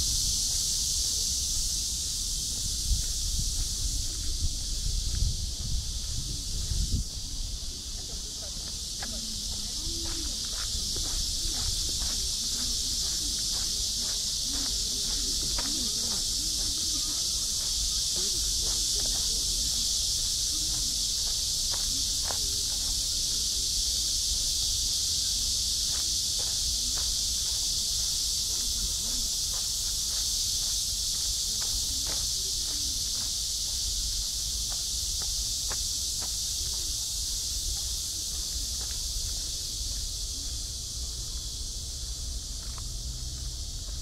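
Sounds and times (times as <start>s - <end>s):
insects chorus: 0.0s - 44.0s
footsteps: 5.0s - 23.6s, 25.3s - 40.6s
distant voices: 7.1s - 24.5s.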